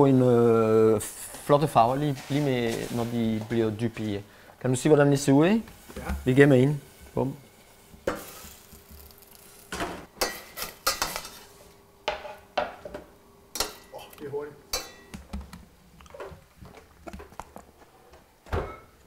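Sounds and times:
metal utensils and pots clattering: 0:08.1 - 0:12.4, 0:13.5 - 0:15.1.

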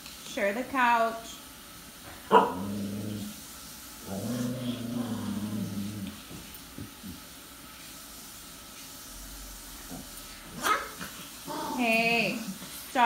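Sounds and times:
dog growling: 0:02.3 - 0:03.4, 0:04.0 - 0:07.2, 0:09.8 - 0:12.6.

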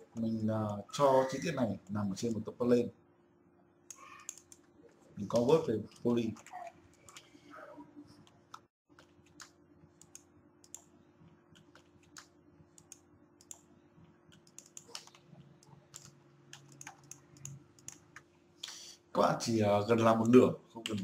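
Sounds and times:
keyboard and mouse clicks: 0:03.9 - 0:04.7, 0:05.3 - 0:07.3, 0:08.2 - 0:10.9, 0:11.5 - 0:13.7, 0:14.3 - 0:18.3, 0:20.2 - 0:21.0.

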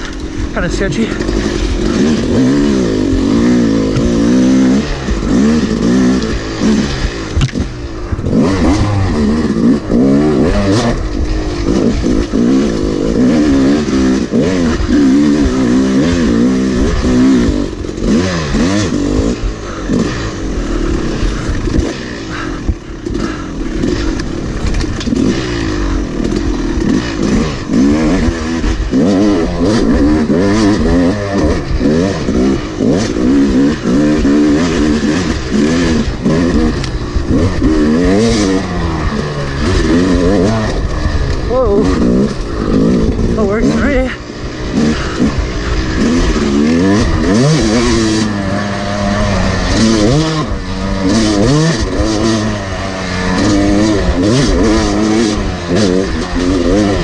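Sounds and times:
dirt bike engine revving: 0:00.0 - 0:57.0
bike knocks and clatter: 0:07.0 - 0:08.9.

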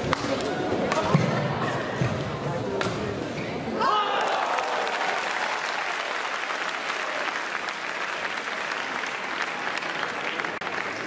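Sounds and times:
crowd applauding: 0:04.1 - 0:11.0.

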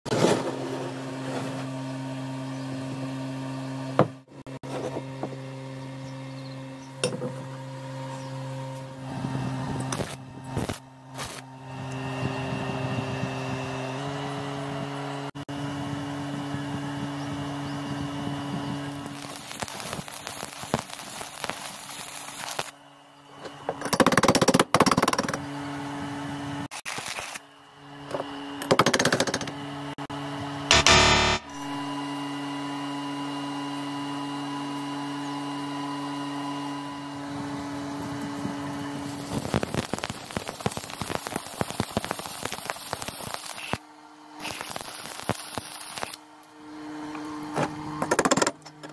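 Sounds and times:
welding arc crackling and sizzling: 0:09.9 - 0:11.5, 0:18.9 - 0:22.8, 0:26.7 - 0:27.4, 0:39.0 - 0:43.8, 0:44.4 - 0:46.2.

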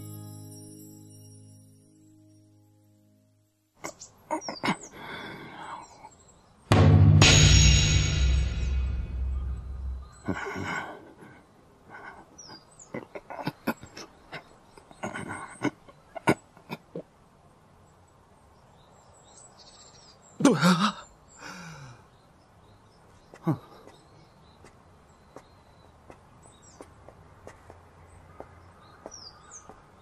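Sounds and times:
faint birds chirping: 0:03.3 - 0:06.7, 0:08.6 - 0:30.0
music cue: 0:06.7 - 0:10.3.

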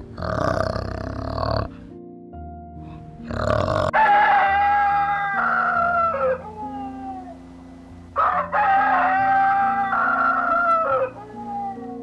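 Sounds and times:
background music: 0:00.0 - 0:12.0
rooster crowing: 0:03.9 - 0:07.5, 0:08.2 - 0:12.0.

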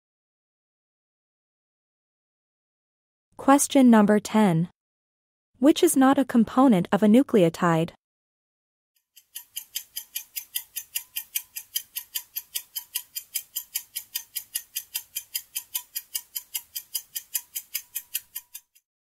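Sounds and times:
clock ticking: 0:09.1 - 0:18.8.

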